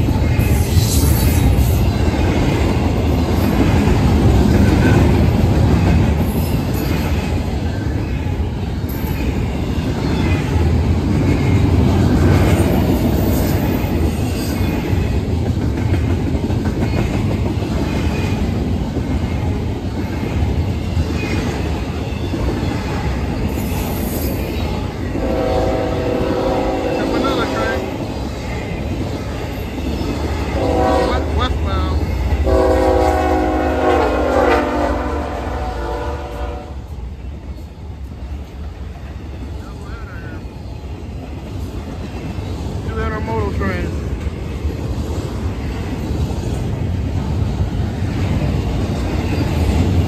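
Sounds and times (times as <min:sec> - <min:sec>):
freight train rumble: 0:00.0 - 0:50.0
train horn: 0:25.1 - 0:27.9, 0:30.5 - 0:31.6, 0:32.4 - 0:36.9.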